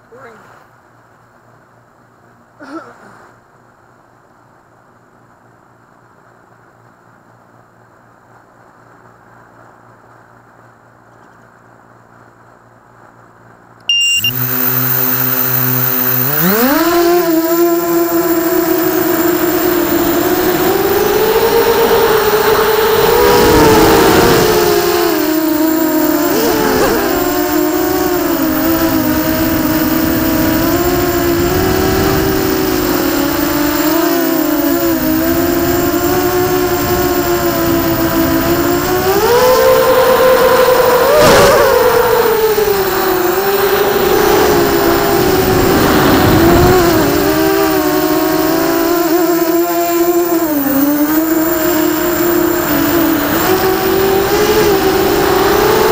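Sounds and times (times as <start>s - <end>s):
quadcopter motors whining: 13.9s - 55.9s.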